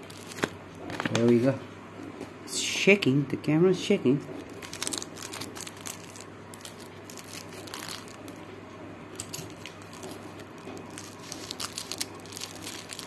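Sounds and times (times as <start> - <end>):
paper and plastic crinkling: 0.0 - 1.4, 4.3 - 8.4, 9.2 - 13.0.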